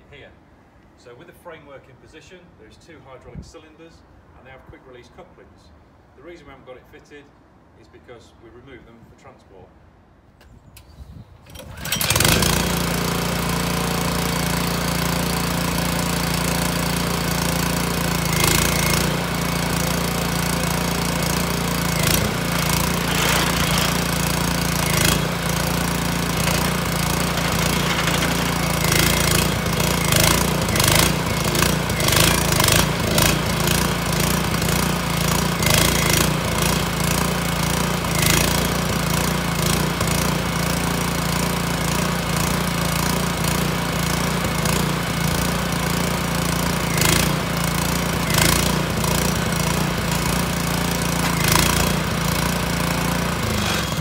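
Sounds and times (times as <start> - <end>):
small petrol engine running: 11.5 - 54.0.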